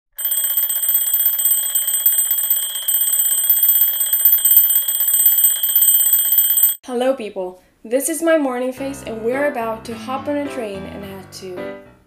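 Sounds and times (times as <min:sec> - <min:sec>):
electronic alarm beeping: 0:00.2 - 0:06.8.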